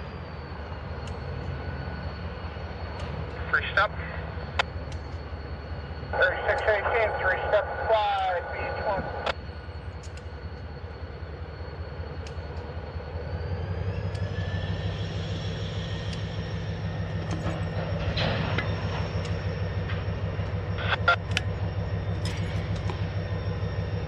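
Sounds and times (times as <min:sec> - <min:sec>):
diesel locomotive engine hum: 0:00.0 - 0:24.0
faint high whine: 0:00.0 - 0:24.0
sharp clicks from train: 0:01.0 - 0:01.6, 0:02.9 - 0:03.5, 0:04.5 - 0:05.3, 0:09.0 - 0:10.7, 0:12.1 - 0:12.9, 0:13.9 - 0:14.6, 0:15.6 - 0:23.5.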